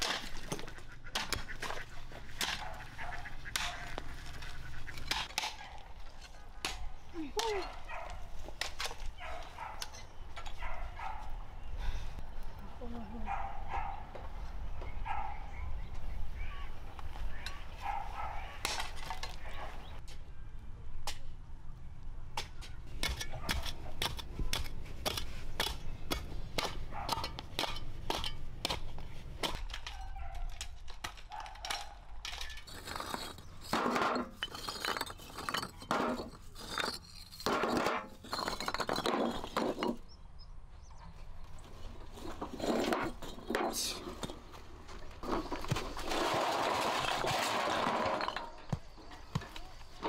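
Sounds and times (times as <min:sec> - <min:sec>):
digging tools knocking clay soil: 0:00.0 - 0:07.8, 0:22.4 - 0:40.0
clay bricks clinking together: 0:31.7 - 0:40.0.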